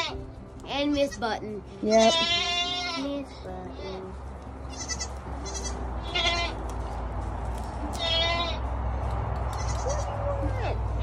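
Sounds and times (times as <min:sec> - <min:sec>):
goats bleating: 0:00.0 - 0:00.2, 0:01.8 - 0:03.0, 0:04.7 - 0:06.6, 0:07.9 - 0:08.6, 0:09.5 - 0:11.0.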